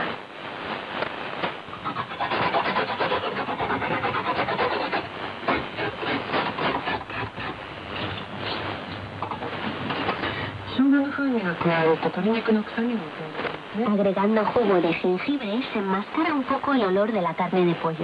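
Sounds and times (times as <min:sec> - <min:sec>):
ginger scraping on a grater: 0:01.8 - 0:08.6
shortwave radio broadcast: 0:05.1 - 0:18.0.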